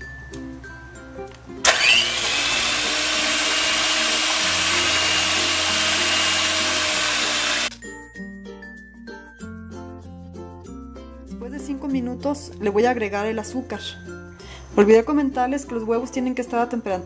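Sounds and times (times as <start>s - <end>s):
background music: 0.0s - 17.0s
electric hand mixer whirring: 1.6s - 7.7s.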